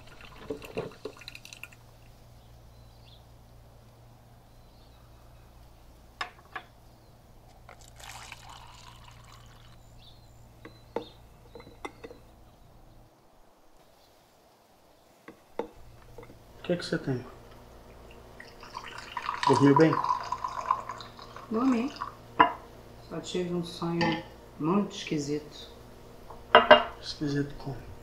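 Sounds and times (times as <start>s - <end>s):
coffee pouring into a mug: 0.0s - 1.8s, 7.7s - 9.8s, 18.4s - 22.2s
low steady hum: 0.0s - 28.0s
crockery clinking on counter: 26.5s - 27.0s.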